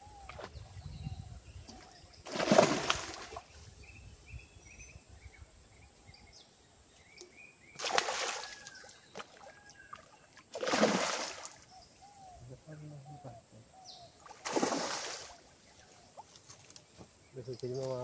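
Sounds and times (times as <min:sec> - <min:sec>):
fish splashing in water: 0:02.3 - 0:03.5, 0:07.8 - 0:11.7, 0:14.3 - 0:15.4
faint bird chirps: 0:11.6 - 0:14.3.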